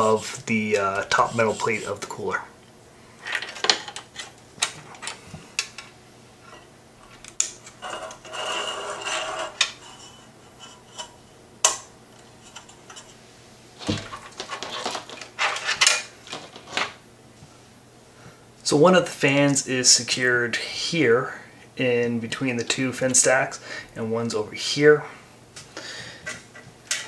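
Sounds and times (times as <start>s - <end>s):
metal rubbing scrape: 0.0s - 2.2s, 7.6s - 11.3s, 13.8s - 16.0s.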